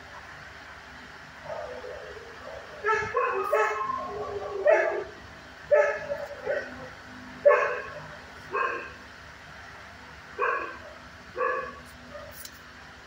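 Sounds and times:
dog barking: 1.4s - 5.1s, 5.7s - 9.0s, 10.4s - 12.4s.

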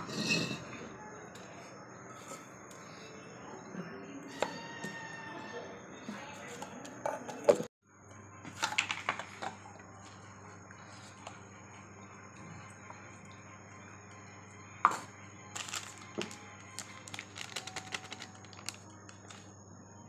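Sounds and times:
faint hum: 9.0s - 20.0s.

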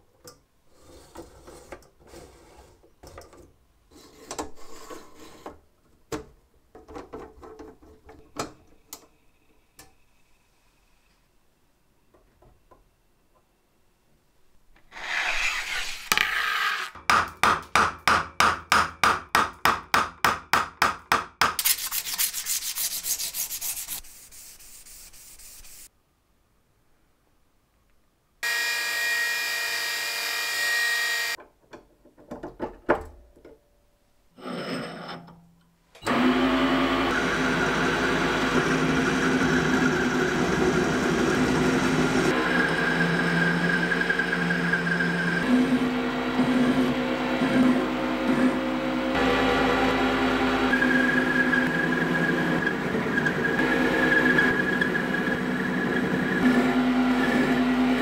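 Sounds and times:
hand scraping strokes on metal rod: 21.6s - 25.9s
bench polishing machine: 36.1s - 58.0s.

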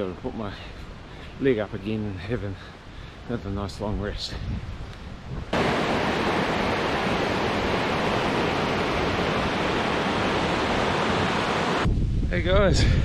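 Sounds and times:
river rushing through rapids: 5.6s - 11.9s.

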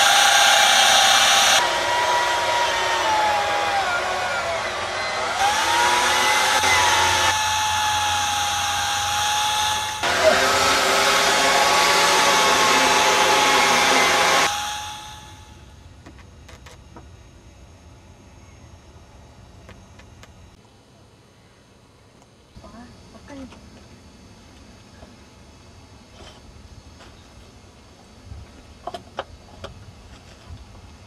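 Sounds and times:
power tool whining: 0.0s - 15.8s
quiet outdoor background: 0.0s - 31.0s.

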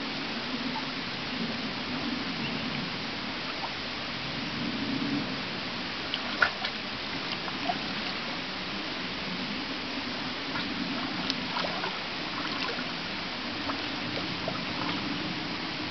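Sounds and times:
water running over rocks: 5.2s - 15.9s
otters splashing in water: 6.1s - 8.3s, 10.5s - 13.0s, 13.6s - 15.2s.

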